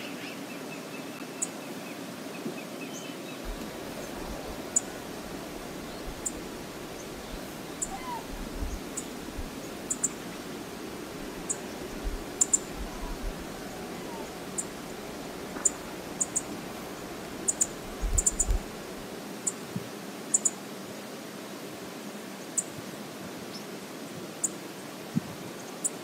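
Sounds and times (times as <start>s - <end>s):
steady hiss: 0.0s - 26.0s
low wind rumble: 3.4s - 19.3s
faint bird chirps: 5.8s - 10.2s, 11.4s - 18.6s.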